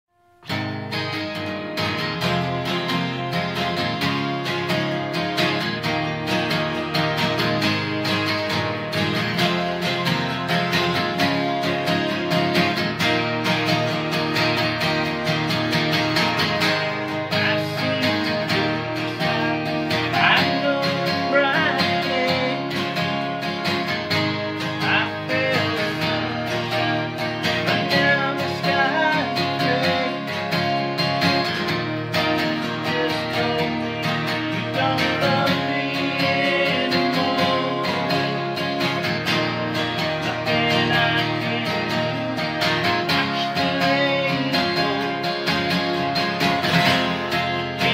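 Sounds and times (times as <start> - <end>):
acoustic guitars strumming: 0.1 - 47.9.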